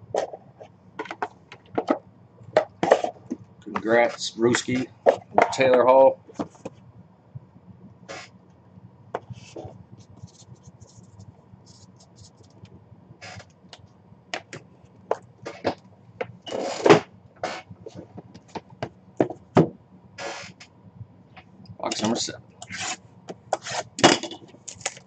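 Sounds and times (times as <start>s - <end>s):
box sliding scrape: 8.1s - 8.3s, 16.5s - 18.0s, 20.2s - 20.6s, 22.6s - 24.0s.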